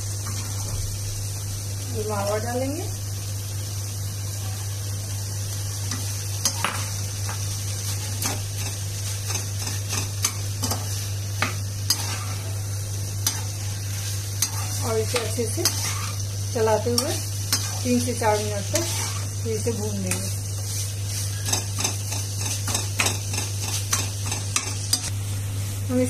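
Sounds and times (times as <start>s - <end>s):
metal spoon scraping a pan: 7.9s - 12.6s, 13.2s - 25.1s.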